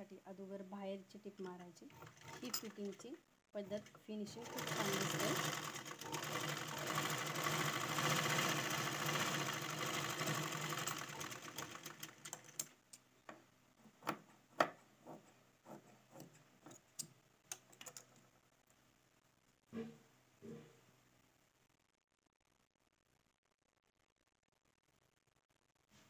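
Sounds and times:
sewing machine running: 0:01.3 - 0:12.7.

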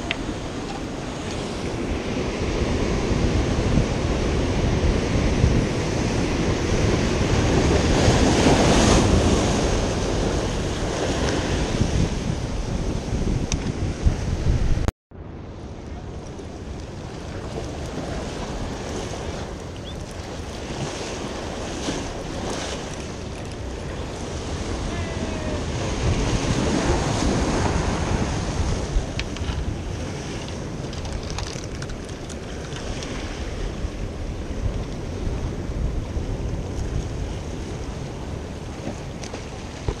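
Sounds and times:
surf washing against rocks: 0:00.0 - 0:13.2, 0:15.8 - 0:40.0
wind buffeting microphone: 0:00.0 - 0:40.0.

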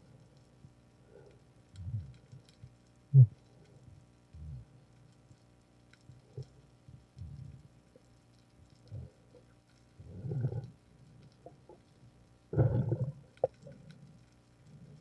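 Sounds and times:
faint clicks: 0:00.1 - 0:15.0.

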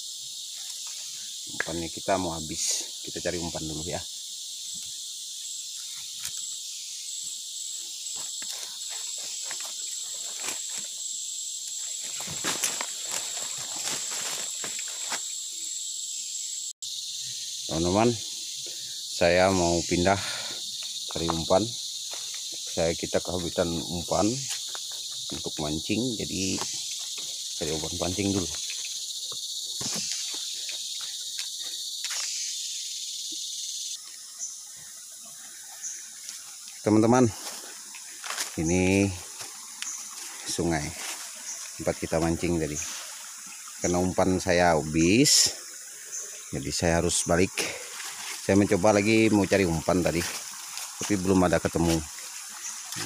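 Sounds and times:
insect chorus: 0:00.0 - 0:53.0
footsteps in leaf litter: 0:08.2 - 0:11.0, 0:11.8 - 0:15.3, 0:37.3 - 0:41.8, 0:47.8 - 0:48.6.

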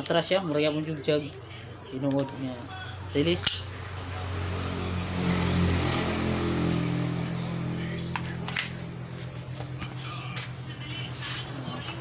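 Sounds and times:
motor engine running: 0:02.8 - 0:12.0.

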